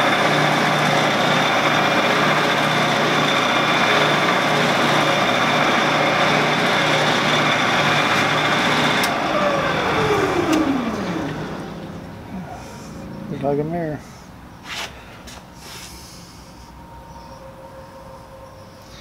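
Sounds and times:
machine whirring and winding down: 0:00.0 - 0:13.1.

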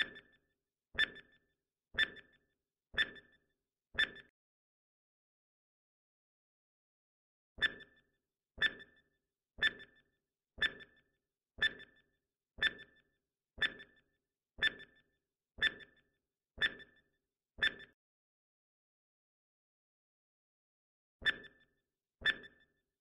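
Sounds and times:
countdown timer ticks: 0:00.0 - 0:00.3, 0:01.0 - 0:01.3, 0:03.0 - 0:03.3, 0:07.6 - 0:08.0, 0:08.6 - 0:09.0, 0:09.6 - 0:11.0, 0:11.6 - 0:12.0, 0:12.6 - 0:13.0, 0:13.6 - 0:14.0, 0:14.6 - 0:15.0, 0:15.6 - 0:16.0, 0:16.6 - 0:17.0, 0:17.6 - 0:18.0.

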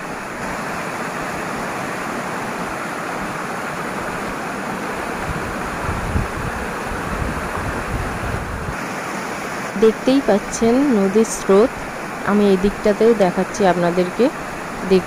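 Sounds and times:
river rushing: 0:00.0 - 0:15.0
wind buffeting on microphone: 0:02.4 - 0:09.1.

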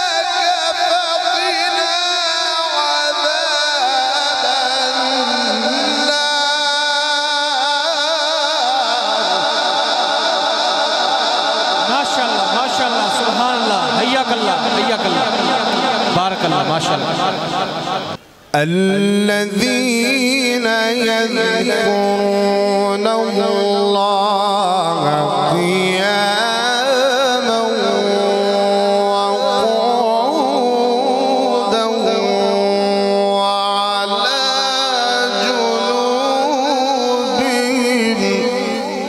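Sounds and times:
man reciting melodically: 0:00.0 - 0:39.0.

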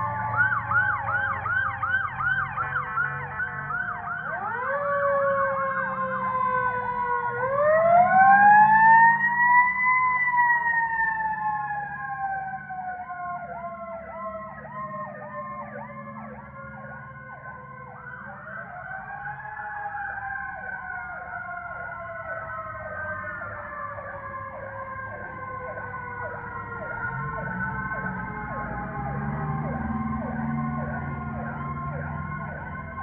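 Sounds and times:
wailing siren: 0:00.0 - 0:33.0
yelping siren: 0:00.0 - 0:33.0.

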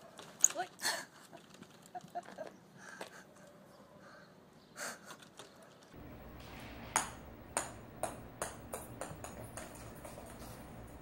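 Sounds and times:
small ball bouncing on wooden floor: 0:06.9 - 0:10.6.

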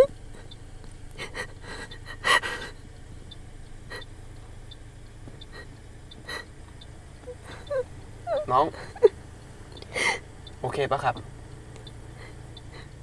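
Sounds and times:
low steady hum: 0:00.0 - 0:13.0
person gasping: 0:09.9 - 0:10.2.

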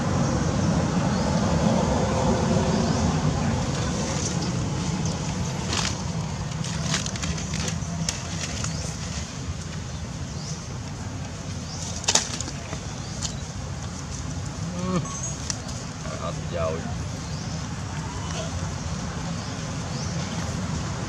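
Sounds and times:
rustling: 0:03.9 - 0:09.8.

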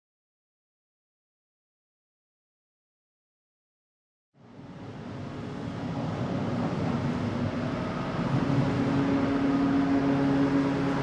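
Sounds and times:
train mechanical hum: 0:04.4 - 0:11.0
station noise: 0:04.8 - 0:11.0.

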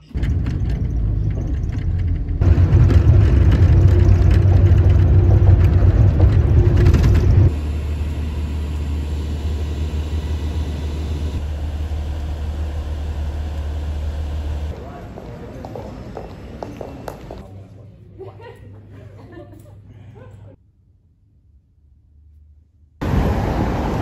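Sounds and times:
vehicle rumble from inside cabin: 0:00.0 - 0:14.8
bus engine hum: 0:00.0 - 0:17.4, 0:23.0 - 0:24.0.

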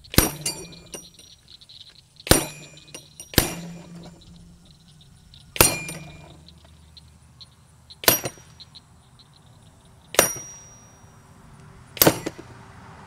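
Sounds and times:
light clinking of swinging paddles: 0:00.0 - 0:07.0
metallic clang of target hits: 0:00.1 - 0:01.4, 0:02.2 - 0:04.8, 0:05.6 - 0:06.5, 0:08.0 - 0:08.6, 0:10.1 - 0:11.0, 0:12.0 - 0:12.4.

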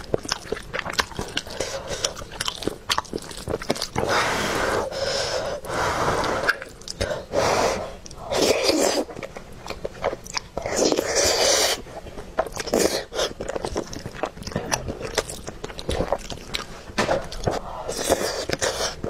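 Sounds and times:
wet chewing: 0:00.0 - 0:04.2, 0:04.8 - 0:07.3, 0:08.0 - 0:19.0.

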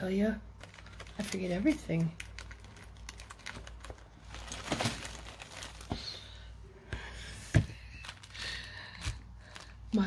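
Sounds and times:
paper rustling: 0:00.6 - 0:06.3.

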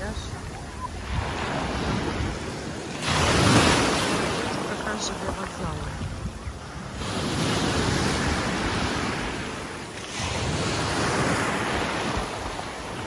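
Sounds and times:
waves washing up pebble beach: 0:01.0 - 0:06.2, 0:06.8 - 0:13.0.

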